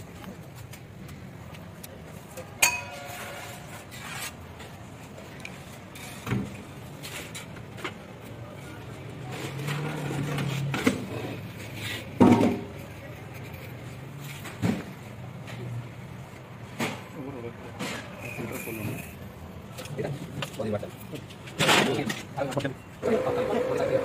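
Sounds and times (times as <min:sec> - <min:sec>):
sharp knocks and clatters: 0:12.1 - 0:12.8.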